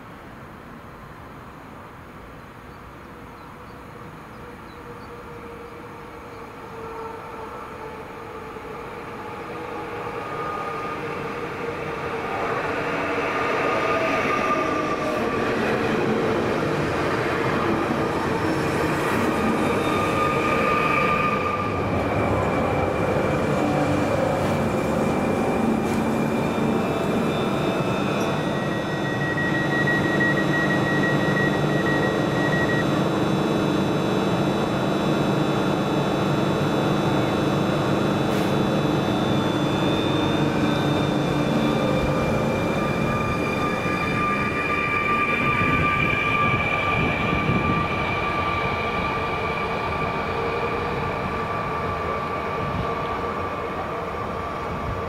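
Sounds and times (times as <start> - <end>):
electric train rolling and whining: 4.0 - 55.0
steady high tone: 19.7 - 50.3.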